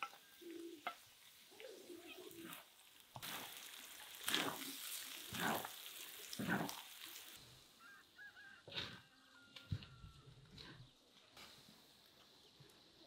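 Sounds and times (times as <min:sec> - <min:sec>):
meat sizzling in a pan: 0:00.0 - 0:07.4.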